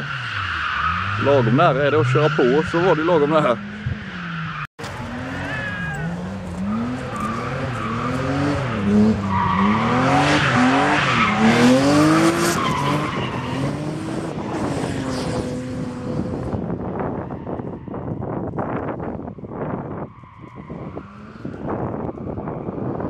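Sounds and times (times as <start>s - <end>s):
tyres screeching: 0.0s - 15.8s
car engine revving: 0.0s - 17.1s.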